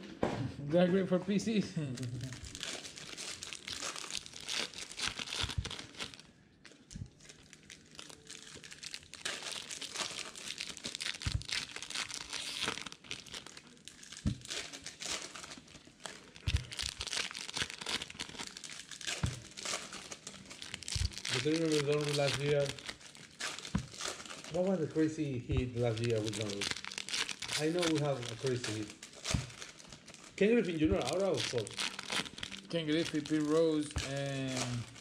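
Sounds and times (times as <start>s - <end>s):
foil wrappers crinkling and tearing: 1.8s - 35.0s
cards being handled: 14.2s - 35.0s.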